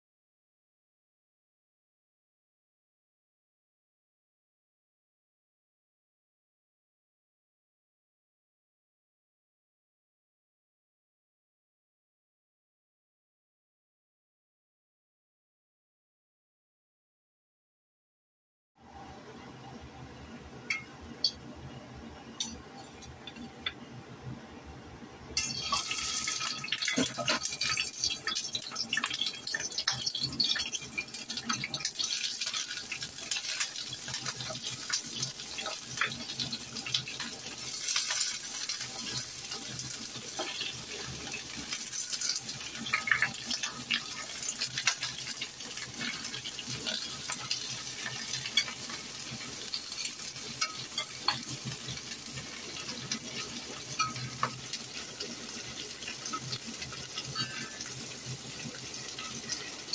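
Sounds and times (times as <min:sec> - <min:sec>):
metal spatula scraping: 0:25.4 - 0:27.8, 0:43.0 - 0:59.9
shrimp sizzling in hot oil: 0:25.4 - 0:59.9.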